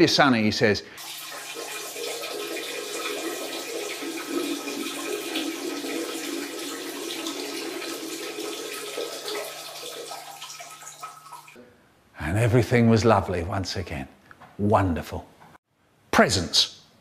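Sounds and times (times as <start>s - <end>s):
running splashing water: 1.0s - 11.6s.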